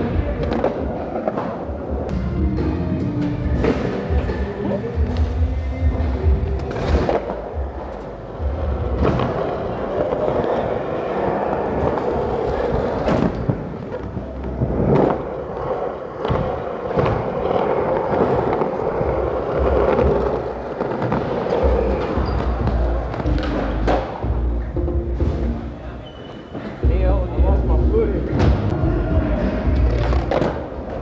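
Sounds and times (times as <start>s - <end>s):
wheels rolling on concrete: 3.5s - 23.9s.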